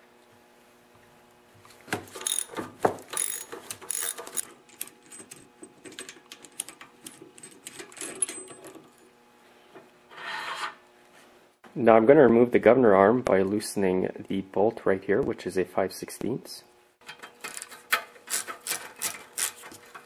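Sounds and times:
ratchet clicking: 2.2s - 4.5s, 17.4s - 19.7s.

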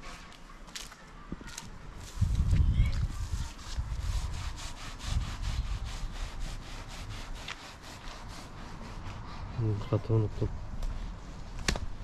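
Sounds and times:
rubbing strokes on hard surface: 2.0s - 11.1s.

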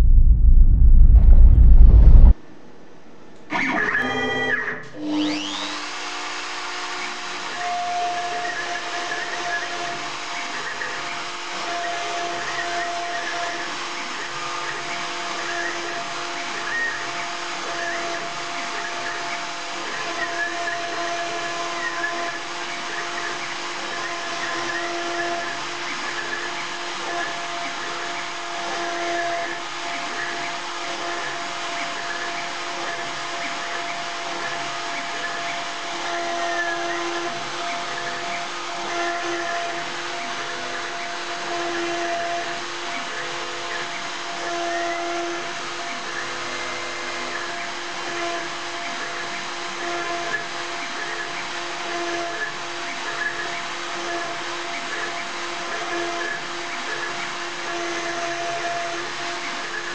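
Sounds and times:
steady machine tones: 0.0s - 2.4s.

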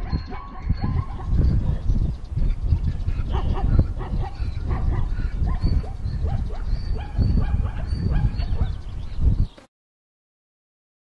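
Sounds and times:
leopard growling: 0.8s - 8.5s.

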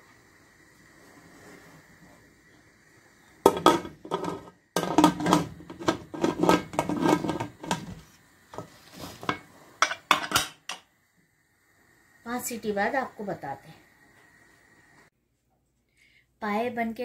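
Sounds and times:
pressure cooker lid clattering: 3.5s - 7.9s, 9.8s - 10.8s.

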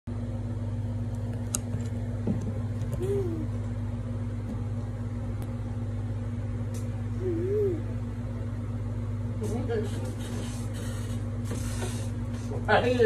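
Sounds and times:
steady low hum: 0.1s - 13.0s
child humming: 2.9s - 3.6s, 7.1s - 8.0s.

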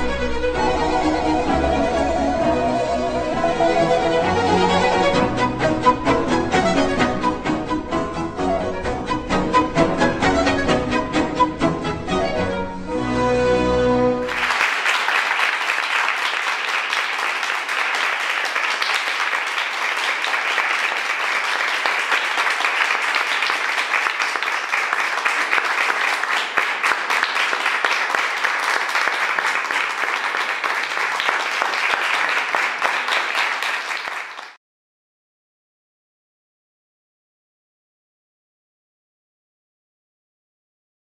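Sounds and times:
audience applauding: 14.2s - 34.6s.

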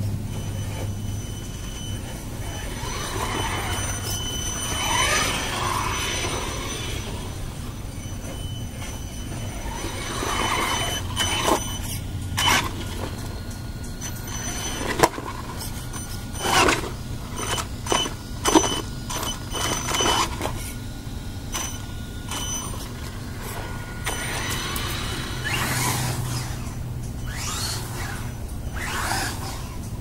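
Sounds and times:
faint steady high whine: 0.0s - 30.0s
rc truck motor whining: 0.0s - 30.0s.

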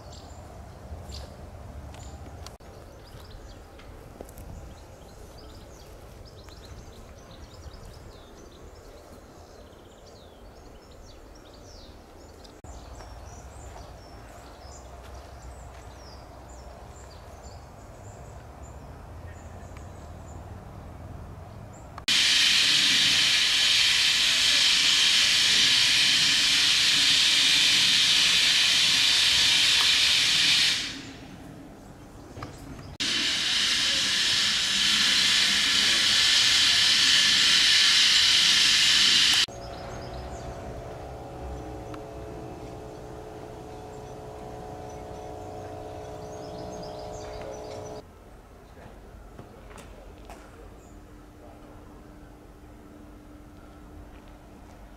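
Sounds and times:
faint birdsong: 0.0s - 22.0s, 39.4s - 48.0s
steam locomotive venting steam: 22.1s - 31.4s, 32.9s - 48.0s
low rumble: 39.4s - 48.0s.

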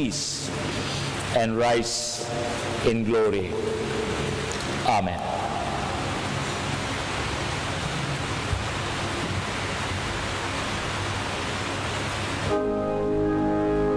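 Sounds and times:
steady background hiss: 0.0s - 13.9s
music with sustained notes: 12.4s - 13.9s.

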